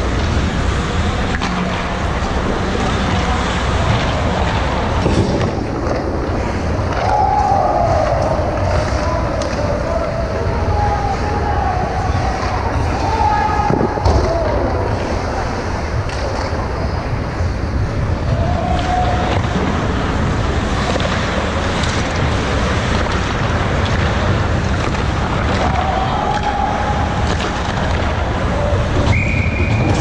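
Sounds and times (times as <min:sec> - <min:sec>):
hockey sticks and puck clacking: 0:00.0 - 0:11.1, 0:18.3 - 0:30.0
ice rink ambience: 0:00.0 - 0:30.0
distant shouts: 0:06.5 - 0:17.0, 0:18.2 - 0:19.8, 0:25.5 - 0:30.0.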